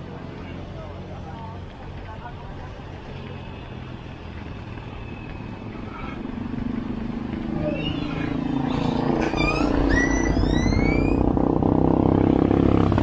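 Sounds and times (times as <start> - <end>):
vehicle engine running: 0.0 - 13.0
short rising chirps: 7.6 - 11.3.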